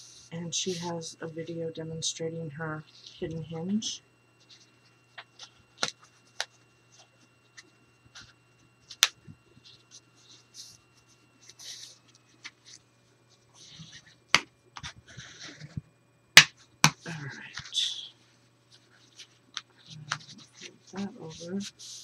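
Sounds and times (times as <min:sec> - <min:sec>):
scratchy paper rubbing strokes: 0:04.4 - 0:15.8, 0:17.0 - 0:22.0.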